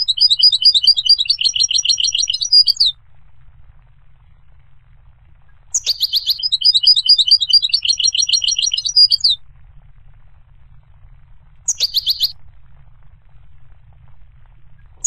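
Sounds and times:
goldfinch singing: 0.0 - 2.9, 5.7 - 9.4, 11.7 - 12.4.

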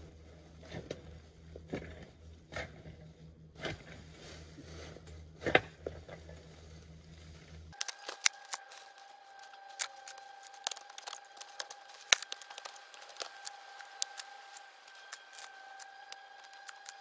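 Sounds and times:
hands scraping soil: 7.7 - 17.0
dry leaves crackling: 7.8 - 17.0.

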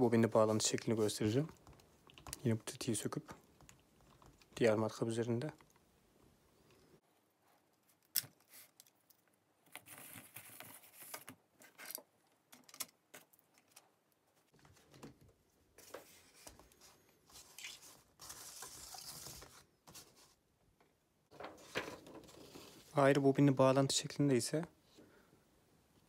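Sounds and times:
rustling and scraping on cardboard: 15.8 - 20.4, 21.4 - 23.0.

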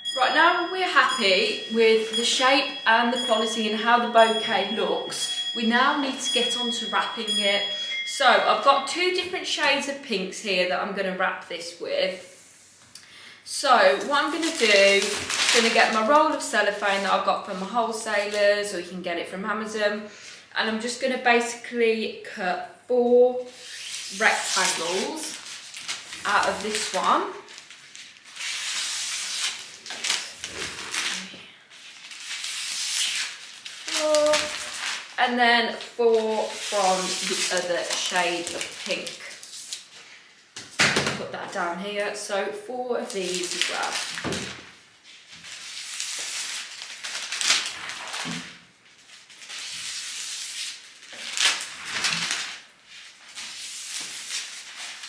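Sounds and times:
cellophane crinkling: 13.9 - 18.7, 23.4 - 40.1, 43.0 - 55.0
scissors cutting cellophane: 14.0 - 16.1, 32.0 - 35.1, 36.1 - 39.8.

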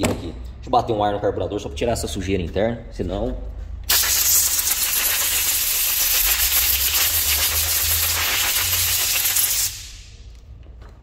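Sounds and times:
compressed air hissing: 3.9 - 10.2.

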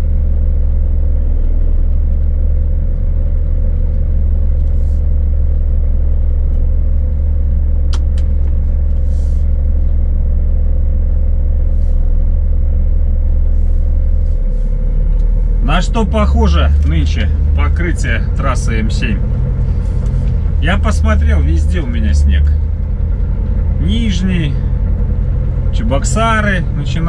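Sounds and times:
diesel truck engine at low revs: 0.0 - 27.0.

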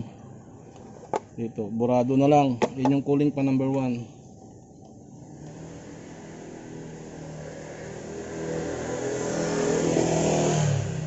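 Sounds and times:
passing vehicle engine running: 5.3 - 11.0.

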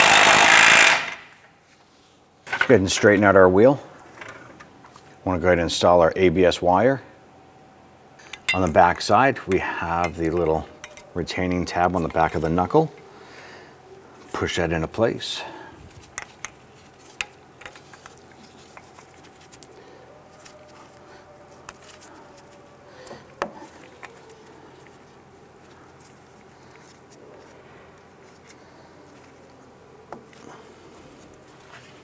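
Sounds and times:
gloved hands rustling: 11.8 - 32.0.

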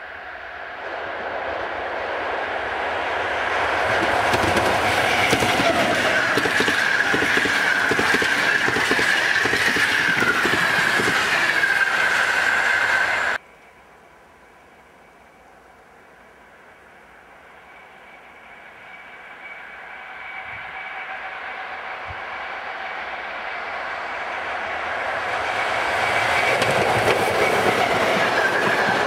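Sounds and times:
high whine of locomotive: 0.0 - 29.0
train wheels clattering over rail joints: 3.9 - 12.6, 25.8 - 29.0.

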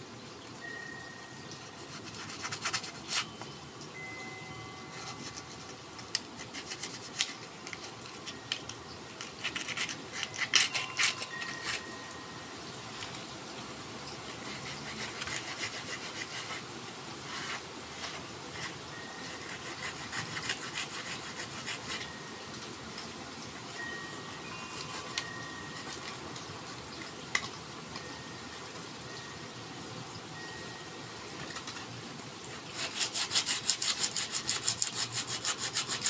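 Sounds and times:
sandpaper rasping on wood: 1.7 - 3.3, 6.4 - 7.4, 14.3 - 22.1, 32.6 - 36.0.

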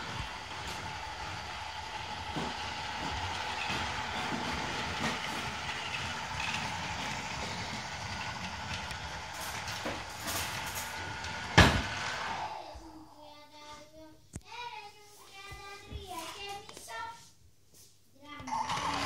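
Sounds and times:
toy train wheels clicking and rattling: 0.0 - 12.4, 18.5 - 19.0
toy train motor whine: 0.0 - 12.6, 18.5 - 19.0.

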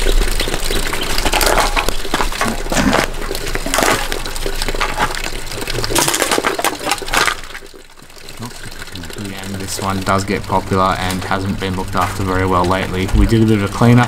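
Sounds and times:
cans and glass clinking: 1.0 - 9.9.

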